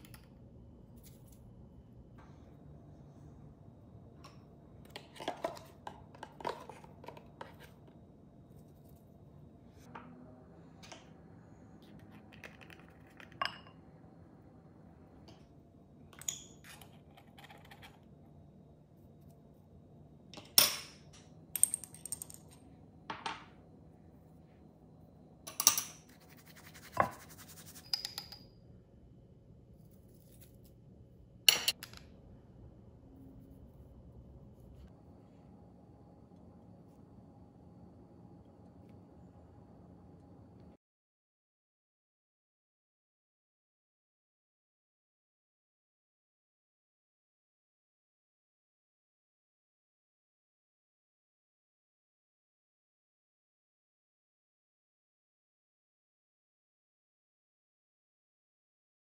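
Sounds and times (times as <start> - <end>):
metal spoons and glass jars clinking: 31.5 - 32.0.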